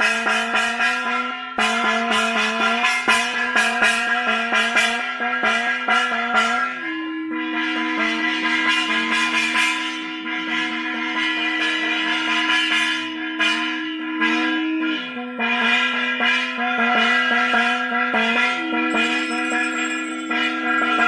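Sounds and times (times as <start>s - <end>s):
ritual bells and gong ringing: 18.8s - 21.0s.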